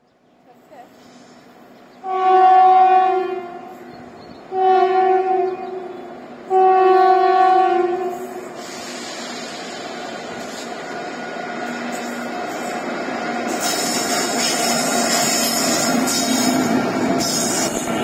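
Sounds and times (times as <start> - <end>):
locomotive air horn blasts: 2.0 - 3.8, 4.5 - 5.9, 6.5 - 8.5.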